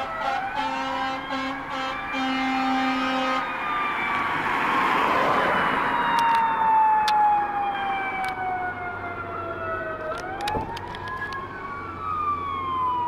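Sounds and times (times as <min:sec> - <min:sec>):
air horn blast: 0:00.0 - 0:03.4
truck engine and tyres passing: 0:00.0 - 0:10.1
siren wailing: 0:00.0 - 0:13.0.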